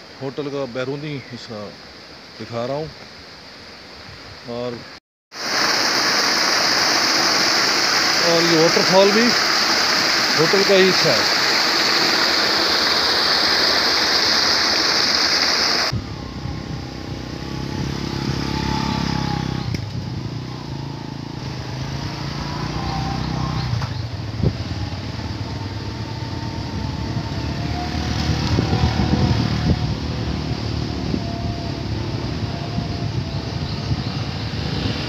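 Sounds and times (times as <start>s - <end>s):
water rushing down cascade: 4.4s - 16.0s, 21.4s - 32.4s
motorcycle engines running: 16.0s - 35.0s.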